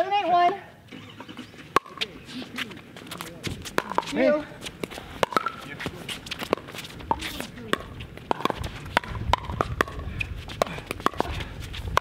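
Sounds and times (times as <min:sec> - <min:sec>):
shoes scuffing on hard court: 0:01.9 - 0:09.1.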